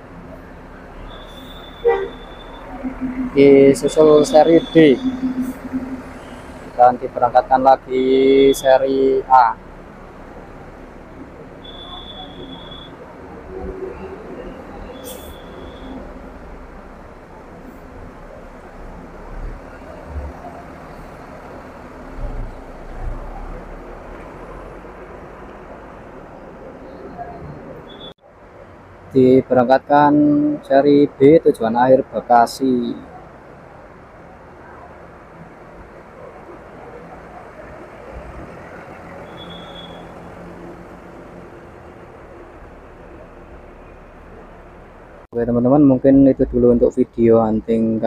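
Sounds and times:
high-pitched squeal: 0.8 - 7.2.

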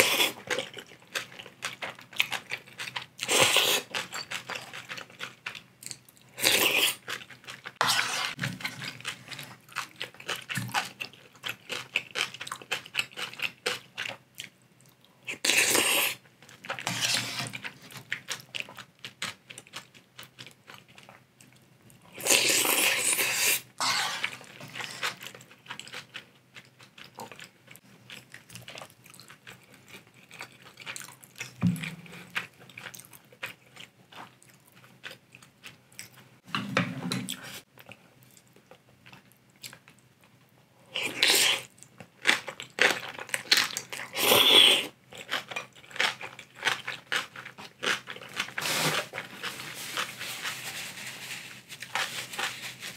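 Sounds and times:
food crunching: 0.0 - 36.3, 41.0 - 52.9
noodle slurping: 22.2 - 25.2.

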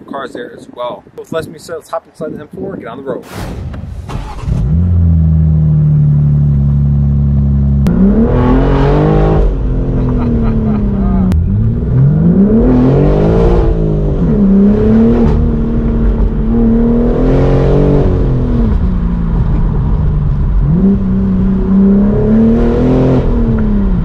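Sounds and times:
car engine revving: 4.1 - 24.0.

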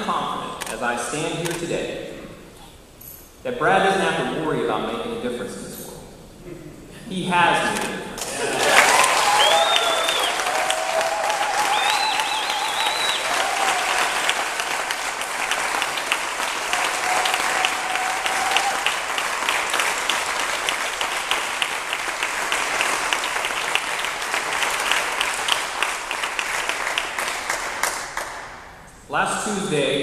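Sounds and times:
cheering voices: 8.2 - 21.1
audience applauding: 8.2 - 28.6
whistles: 9.1 - 10.7, 11.6 - 13.4.

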